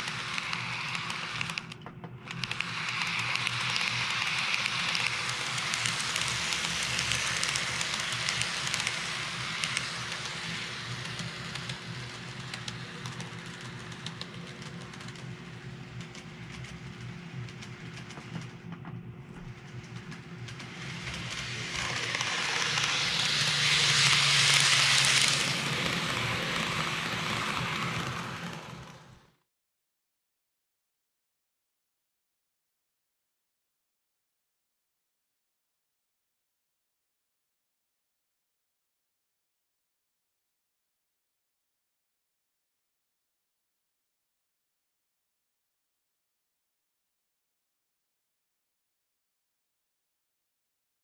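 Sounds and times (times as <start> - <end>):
wheels clicking on rails: 0.0 - 29.3
model train rolling on track: 0.0 - 29.4.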